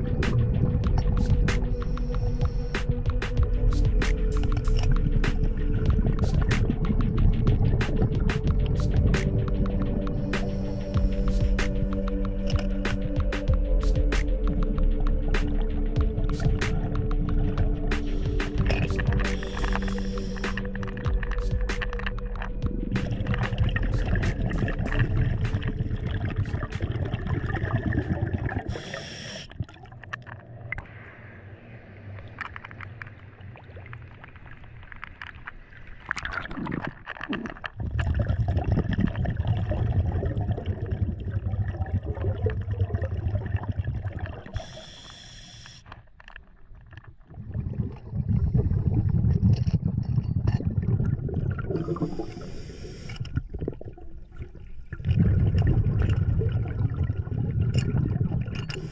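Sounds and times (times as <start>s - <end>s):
bubbling exhalation underwater: 22.3s - 30.1s, 36.2s - 44.8s, 47.2s - 58.9s
scuba regulator hiss: 28.7s - 29.5s, 44.6s - 45.9s, 51.9s - 53.2s.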